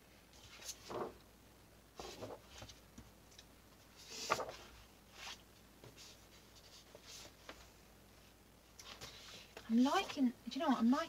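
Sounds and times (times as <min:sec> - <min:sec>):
paper sheets rustling: 0:00.4 - 0:01.2, 0:02.0 - 0:02.8, 0:03.8 - 0:07.8.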